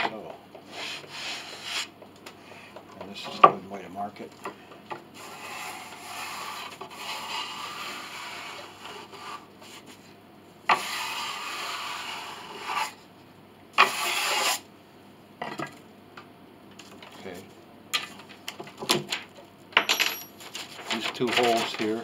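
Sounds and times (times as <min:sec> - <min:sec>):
scraping on wood: 0:05.2 - 0:10.1, 0:10.7 - 0:13.0, 0:13.8 - 0:14.6.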